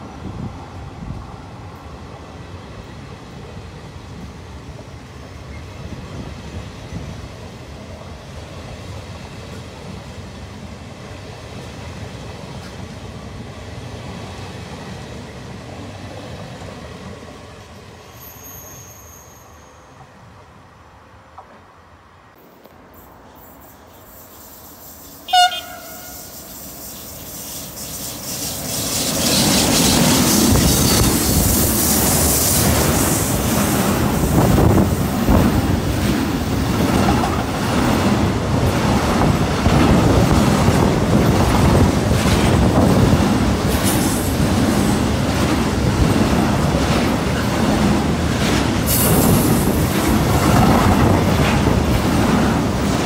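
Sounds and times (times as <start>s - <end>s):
freight train rumbling past: 0.0s - 53.0s
locomotive horn blast: 25.3s - 26.5s
train wheels clattering on rails: 26.6s - 53.0s.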